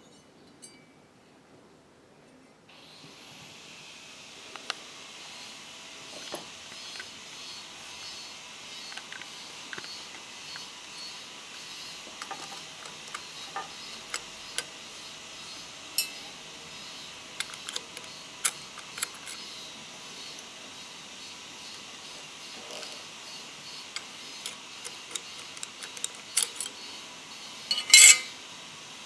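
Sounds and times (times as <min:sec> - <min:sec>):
sewing machine mechanism clicks: 0:17.4 - 0:19.5, 0:23.9 - 0:26.8.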